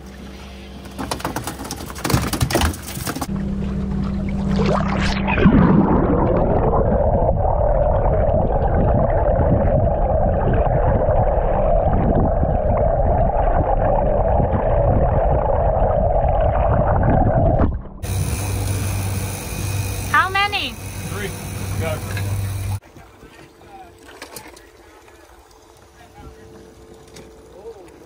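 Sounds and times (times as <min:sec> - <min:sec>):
underwater boat motor drone: 0:03.2 - 0:22.8.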